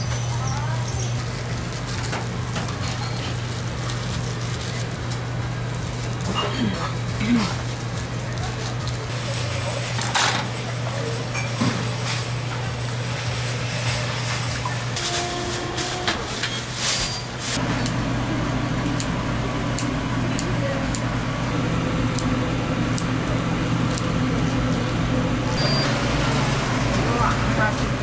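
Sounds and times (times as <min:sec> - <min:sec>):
steady low hum: 0:17.6 - 0:28.0.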